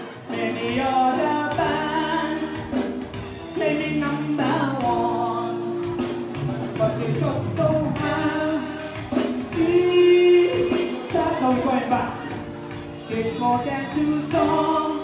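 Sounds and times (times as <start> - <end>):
guitar: 0.0 - 15.0
person singing lead vocals: 0.0 - 15.0.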